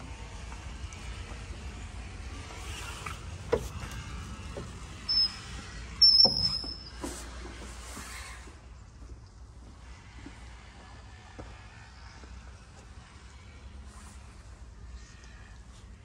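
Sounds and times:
door hinges squeaking: 4.6 - 7.2.

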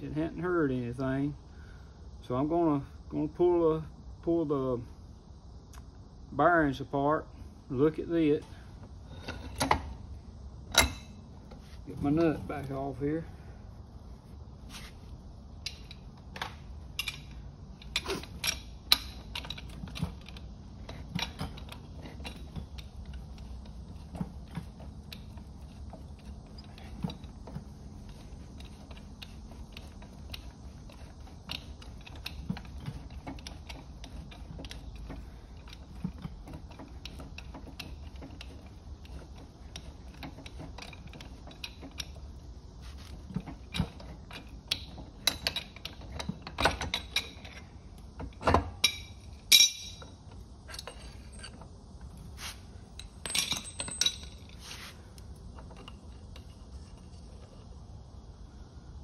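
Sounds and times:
low steady hum: 0.0 - 59.0
wrench clicking on metal: 16.9 - 42.2.

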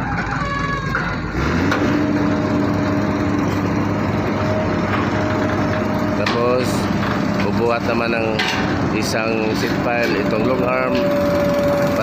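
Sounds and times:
excavator diesel engine revving: 0.9 - 12.0.

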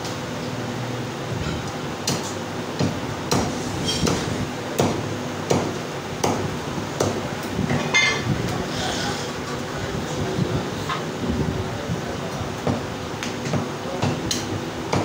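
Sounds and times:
cleaver chopping meat on wood: 2.0 - 7.2, 13.5 - 15.0.

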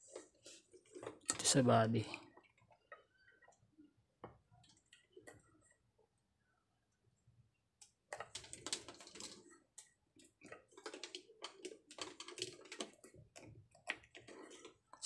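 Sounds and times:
small clicks taps and scrapes: 2.1 - 5.8, 7.8 - 15.0.

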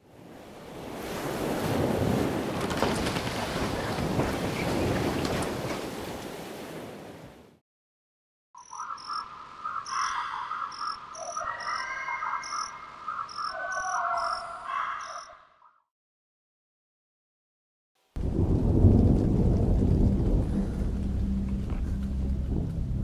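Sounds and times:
insects chirping: 8.6 - 15.4
frogs croaking: 8.6 - 15.8.

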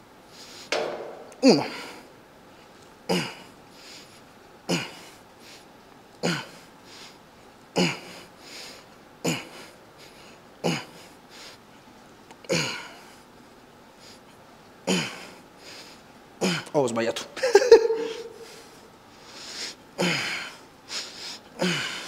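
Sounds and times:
man breathing hard: 1.4 - 2.1, 3.1 - 5.7, 7.8 - 11.6, 18.0 - 22.0
man grunting: 1.4 - 2.1, 16.4 - 16.7.

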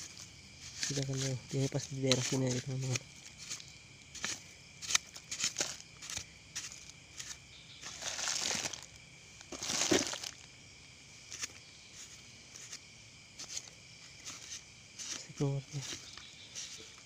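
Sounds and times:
digging in loose soil: 0.0 - 17.0.

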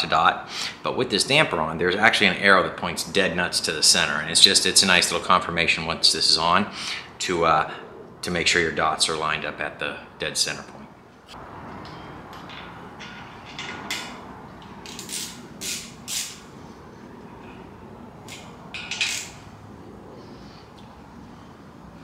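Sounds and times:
hand tools clinking on metal: 11.8 - 14.2.

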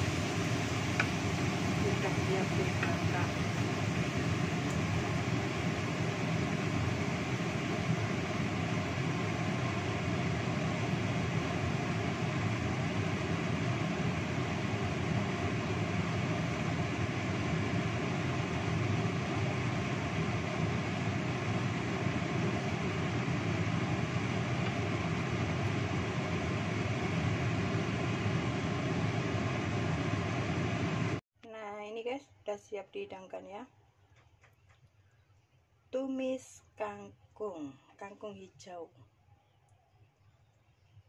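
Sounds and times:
gas burner: 0.0 - 31.2
wok stir-frying hiss: 0.0 - 31.2.

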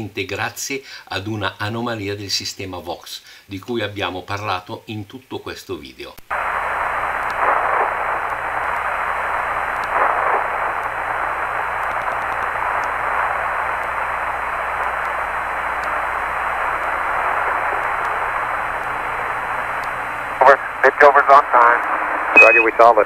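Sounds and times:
radio hiss: 6.3 - 23.0.

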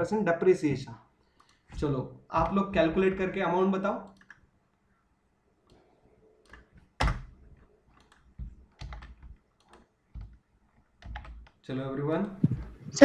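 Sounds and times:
computer keyboard typing: 1.3 - 3.4, 4.0 - 4.5, 5.7 - 11.7.

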